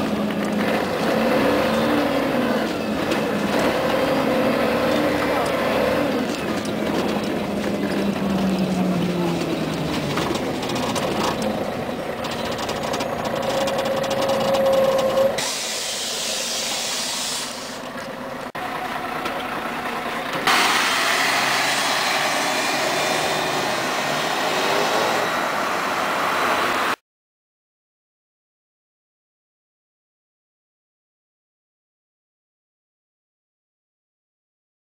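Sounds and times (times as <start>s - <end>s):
bus drivetrain whine: 0.0s - 27.0s
compressed air hiss: 15.4s - 17.8s
loud steady hiss: 15.4s - 17.8s.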